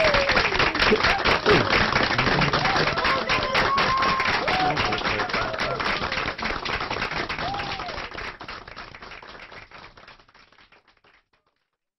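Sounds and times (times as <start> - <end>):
audience cheering: 0.0 - 8.3
audience clapping: 0.0 - 11.8.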